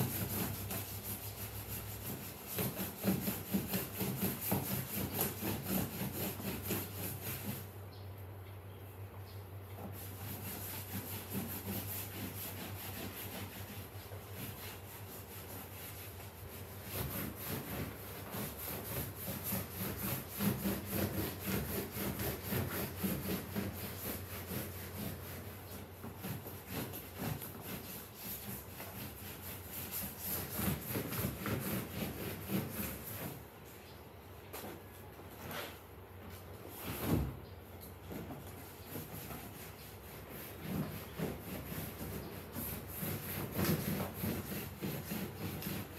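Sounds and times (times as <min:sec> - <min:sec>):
sponge scrubbing upholstery: 0:00.0 - 0:07.7, 0:09.9 - 0:33.4, 0:38.8 - 0:45.9.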